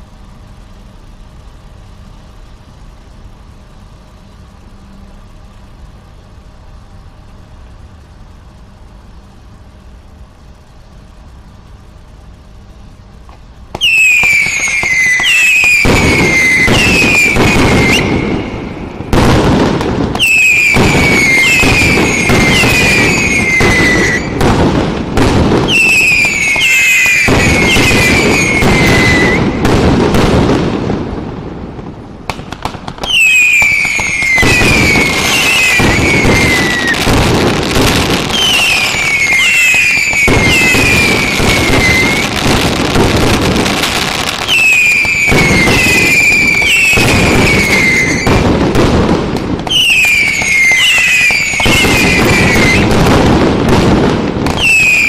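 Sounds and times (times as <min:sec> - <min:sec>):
low steady hum: 0:00.0 - 0:50.4
firework bangs and crackling: 0:00.0 - 0:55.0
firework whistles falling in pitch: 0:13.0 - 0:30.8, 0:32.3 - 0:53.8, 0:54.4 - 0:55.0.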